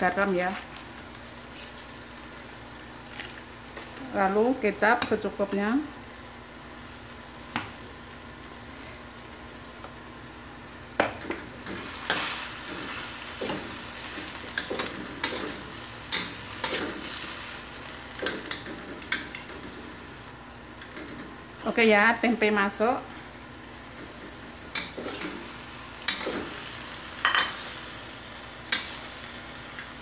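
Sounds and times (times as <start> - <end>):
vegetables sizzling in a wok: 0.0 - 30.0.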